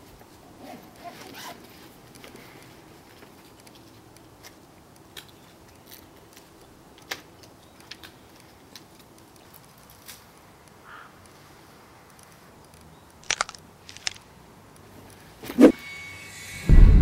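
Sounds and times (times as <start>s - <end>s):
plastic bottle crackling: 13.2s - 14.2s.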